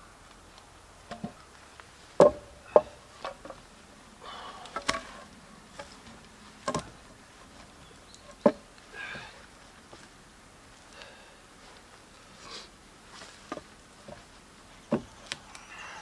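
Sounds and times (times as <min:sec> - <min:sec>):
wooden boards clacking: 0:02.2 - 0:03.6, 0:04.8 - 0:05.2, 0:06.6 - 0:07.0, 0:14.9 - 0:15.1
rustling: 0:04.6 - 0:16.0.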